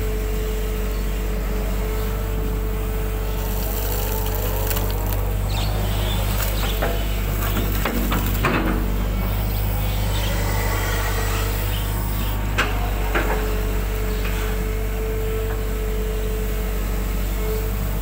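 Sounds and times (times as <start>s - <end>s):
excavator diesel engine: 0.0s - 18.0s
excavator bucket knocks: 6.5s - 9.0s.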